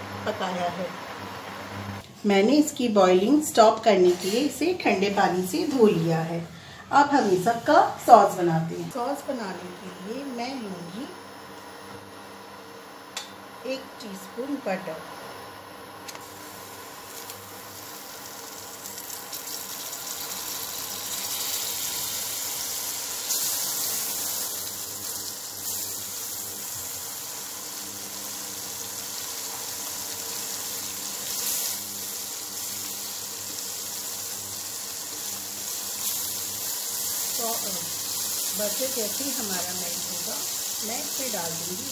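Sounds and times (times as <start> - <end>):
butter sizzling in a pan: 16.1 - 41.9.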